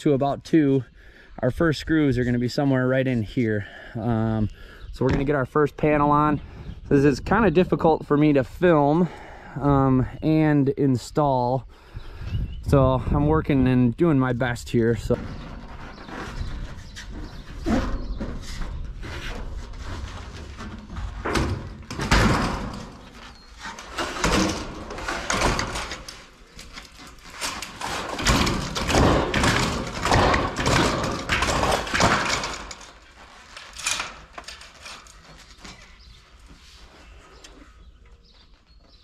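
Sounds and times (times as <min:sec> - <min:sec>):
sheet metal scraping and rattling: 0:14.7 - 0:36.1.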